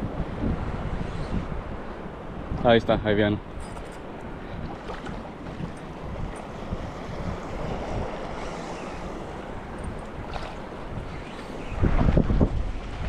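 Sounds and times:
wind buffeting microphone: 0.0s - 13.0s
small waves washing: 3.4s - 13.0s.

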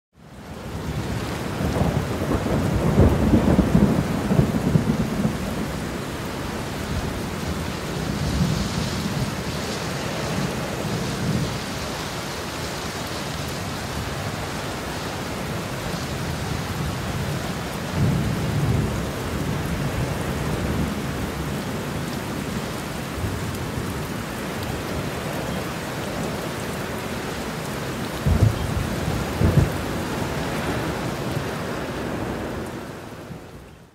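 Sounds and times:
steady rain: 0.1s - 33.9s
rolling thunder: 1.5s - 5.9s, 28.1s - 32.8s.

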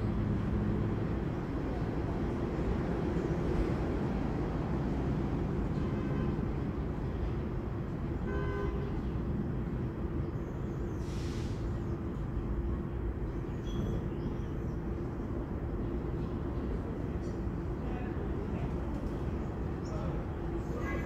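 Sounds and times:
low rumble of traffic: 0.0s - 21.0s
brief hiss: 11.0s - 11.7s.

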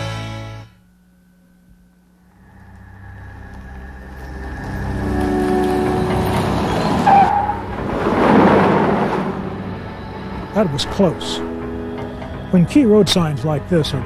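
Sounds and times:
car engines approaching: 2.3s - 14.0s
truck rushing past: 2.5s - 12.4s
tyre squeal: 5.0s - 10.2s.

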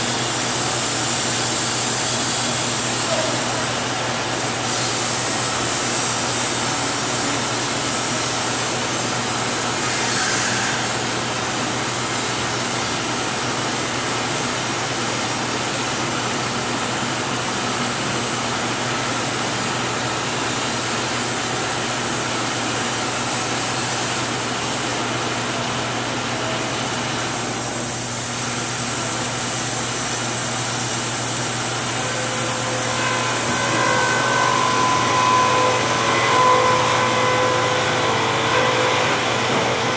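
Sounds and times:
sawmill machinery running: 0.0s - 39.9s.

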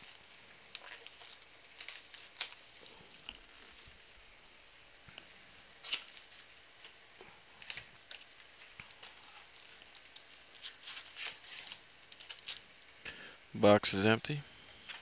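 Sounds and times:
foil rustling: 0.0s - 4.3s, 5.8s - 12.9s.

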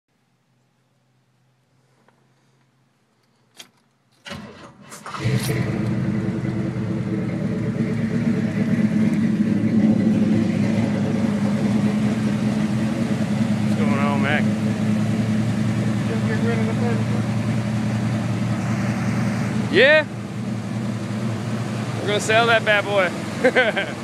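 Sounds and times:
engine cranking: 3.4s - 18.5s
engine running: 4.3s - 24.0s.

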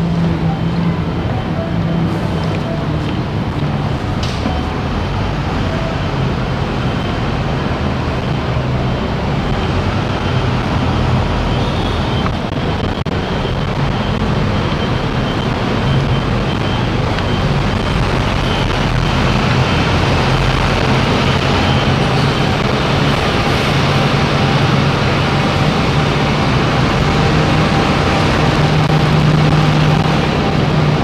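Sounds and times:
bus engines rumbling: 0.0s - 31.0s
road traffic: 0.0s - 31.0s.

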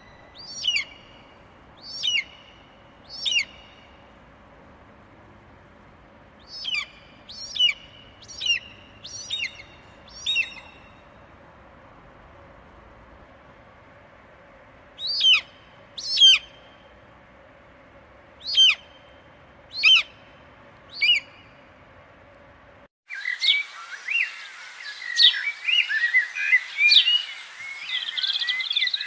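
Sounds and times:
birds chirping and trilling: 0.0s - 4.1s, 6.4s - 11.2s, 15.0s - 16.8s, 18.4s - 21.7s, 23.1s - 29.0s
faint background hiss: 0.0s - 29.0s
bird whistles slurring downward: 23.1s - 29.0s.

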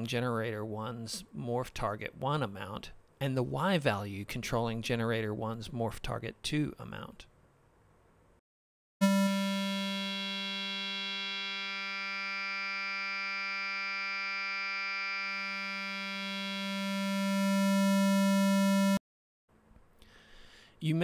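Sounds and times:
synthesizer held note: 9.0s - 19.0s.

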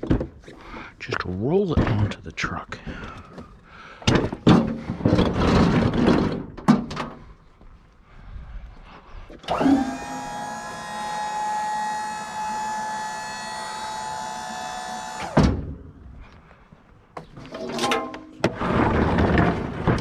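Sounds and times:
knocks and clatter: 4.0s - 7.2s, 17.2s - 20.0s
electric motor whining: 9.4s - 15.4s.

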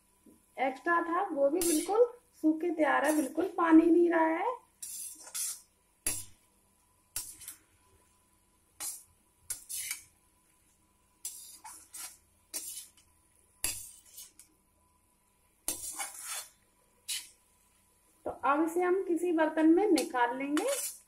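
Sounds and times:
metal spatula scraping pan: 1.6s - 2.0s, 2.9s - 3.6s, 4.8s - 6.4s, 7.1s - 7.6s, 8.8s - 10.1s, 11.2s - 14.5s, 15.6s - 17.4s, 20.0s - 21.0s.

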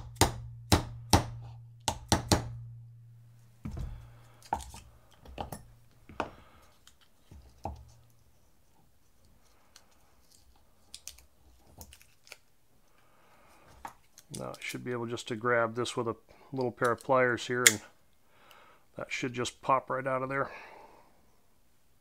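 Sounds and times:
hammer striking pin punch: 0.0s - 2.8s
low hum: 0.0s - 6.0s
soft clicks of metal parts: 9.0s - 13.1s, 13.7s - 14.8s.

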